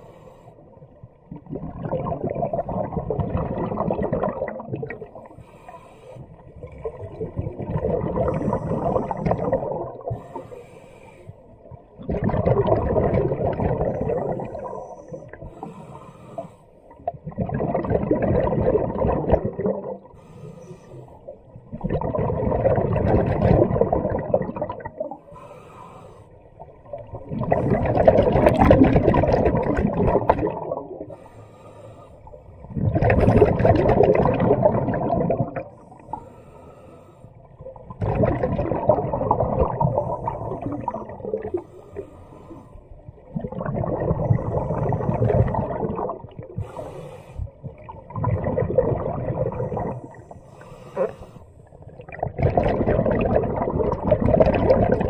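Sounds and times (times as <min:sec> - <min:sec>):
diver breathing: 0:00.0 - 0:00.8, 0:05.2 - 0:06.5, 0:08.2 - 0:11.6, 0:13.8 - 0:17.0, 0:20.1 - 0:21.5, 0:25.2 - 0:26.6, 0:31.1 - 0:32.7, 0:35.7 - 0:37.6, 0:41.5 - 0:43.2, 0:46.5 - 0:47.8, 0:49.3 - 0:51.8
underwater exhaled bubbles: 0:00.0 - 0:55.0.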